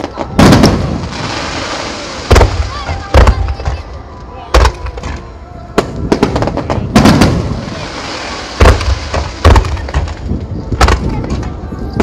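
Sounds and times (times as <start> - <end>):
firework crackle: 0.0 - 4.0, 5.8 - 12.0.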